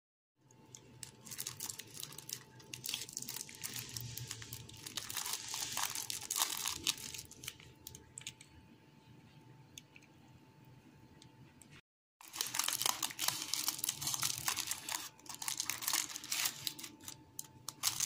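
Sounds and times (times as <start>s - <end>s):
pastry crackling as torn: 0.7s - 8.4s, 12.2s - 18.0s
paper liner crinkling: 0.7s - 8.5s, 12.2s - 18.0s.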